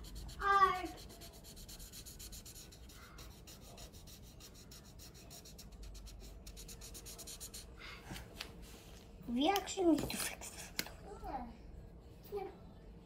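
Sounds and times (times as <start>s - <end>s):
marker colouring on paper: 0.0s - 7.7s.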